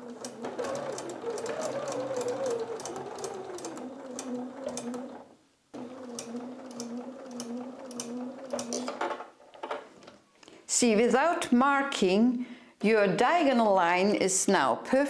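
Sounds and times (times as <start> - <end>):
sewing machine stitching: 0.0 - 9.1.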